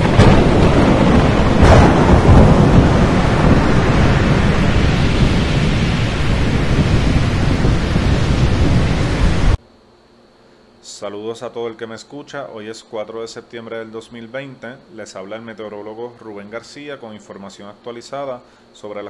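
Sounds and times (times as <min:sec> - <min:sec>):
heavy rain: 0:00.0 - 0:09.6
rumbling thunder: 0:00.0 - 0:09.6
thunder crack: 0:00.0 - 0:09.6.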